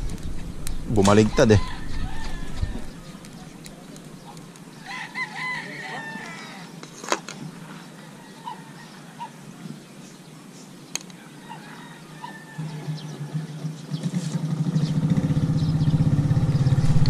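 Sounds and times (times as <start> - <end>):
rooster crowing: 1.1 - 3.3, 4.8 - 6.8, 11.2 - 13.5.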